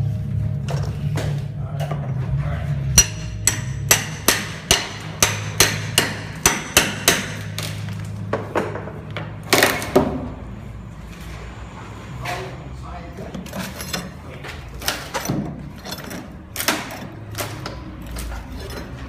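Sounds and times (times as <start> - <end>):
hammer striking steel pry bar: 3.0 - 7.6.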